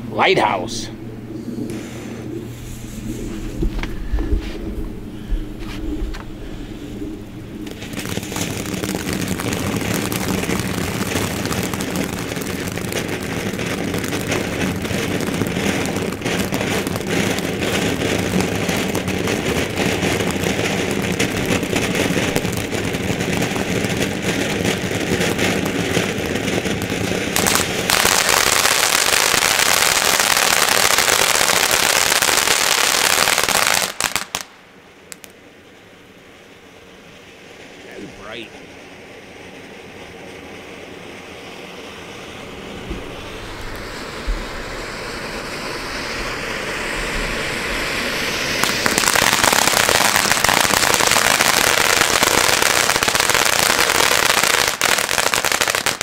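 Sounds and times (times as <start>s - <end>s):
firework spraying sparks hissing: 6.9s - 34.5s, 41.2s - 56.0s.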